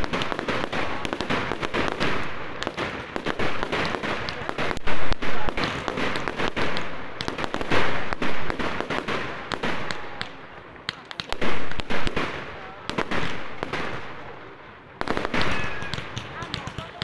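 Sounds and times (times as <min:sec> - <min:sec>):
fireworks crackling and popping: 0:00.0 - 0:17.0
firework shells bursting: 0:15.0 - 0:17.0.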